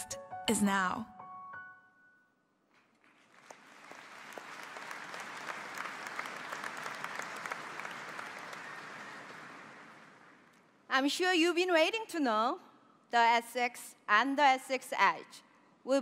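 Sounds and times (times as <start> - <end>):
audience applauding: 3.0 - 10.6.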